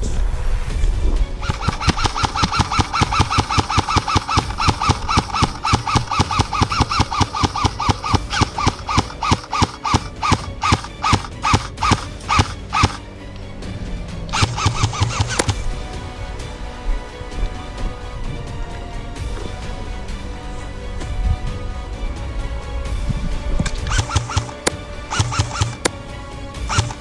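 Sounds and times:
noisy sound swell: 0.0s - 3.0s
background music: 0.0s - 27.0s
fast ticking beat of clicks: 1.4s - 13.0s, 14.3s - 15.6s, 23.6s - 26.0s, 26.6s - 27.0s.

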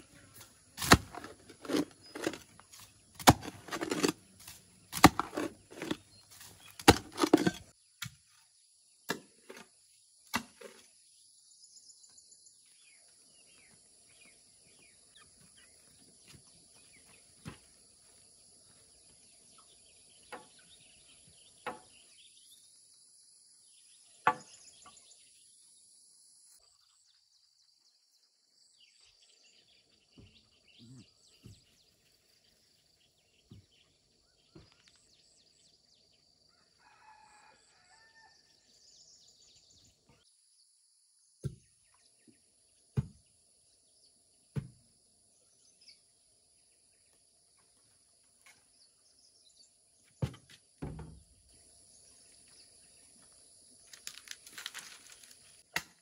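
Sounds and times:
bird chirps: 28.7s - 36.2s
knocks on bamboo fence: 50.2s - 51.2s.

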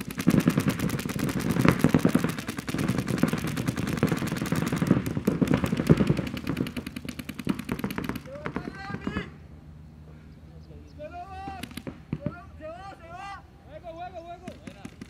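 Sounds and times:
paintball markers firing rapidly: 0.0s - 9.3s, 11.4s - 12.3s, 14.4s - 15.0s.

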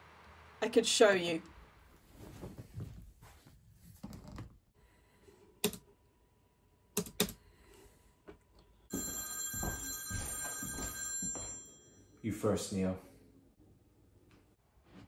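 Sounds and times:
telephone ringing: 8.9s - 12.2s.

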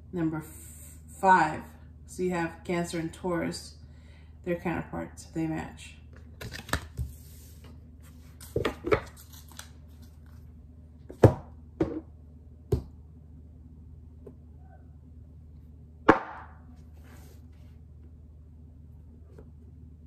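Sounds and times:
cards sliding rustle: 6.4s - 10.5s.

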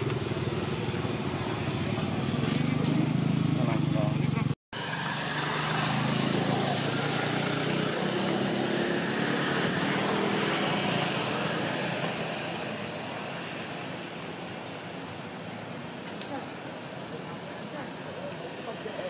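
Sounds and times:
motor engine running: 0.0s - 8.4s
outdoor background noise: 0.0s - 19.0s.

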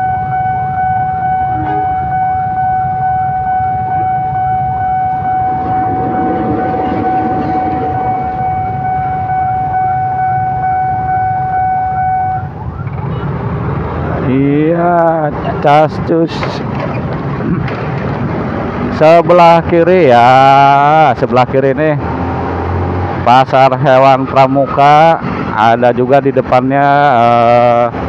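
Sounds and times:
level-crossing warning alarm: 0.0s - 12.5s
diesel locomotive rumble: 0.0s - 28.0s.

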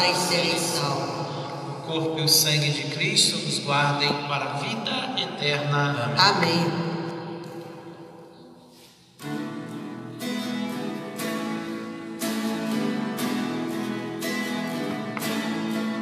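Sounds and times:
guitar strumming chords: 7.4s - 16.0s.

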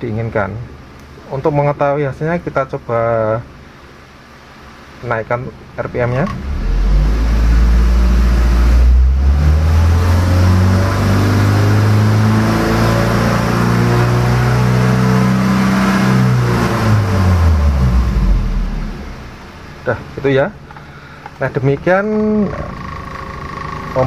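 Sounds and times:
car engine revving: 5.9s - 19.9s.

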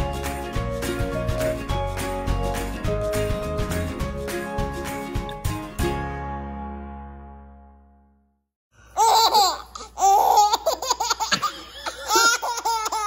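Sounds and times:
music: 0.0s - 8.5s
baby laughing: 9.0s - 13.0s.

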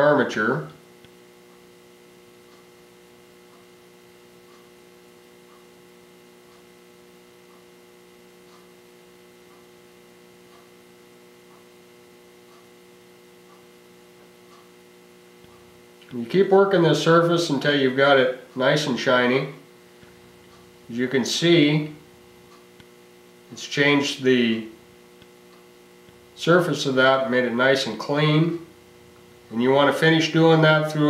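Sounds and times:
electrical hum of held tones: 0.0s - 31.0s
faint soft ticks: 2.5s - 2.7s, 4.4s - 4.7s, 5.4s - 5.7s, 6.4s - 6.7s, 7.4s - 7.7s, 8.4s - 8.8s, 10.4s - 10.8s, 12.5s - 12.7s.

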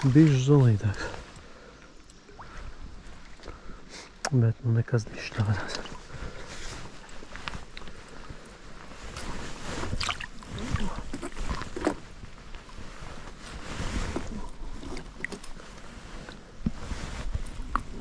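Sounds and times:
water splashes: 5.2s - 16.4s.

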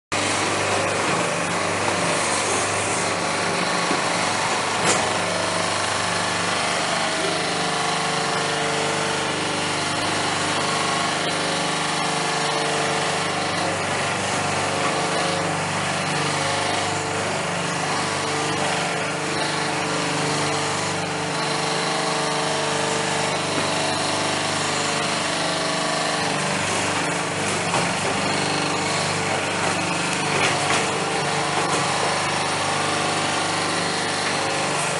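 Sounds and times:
husk peeling machine hum and rattle: 0.1s - 34.9s.

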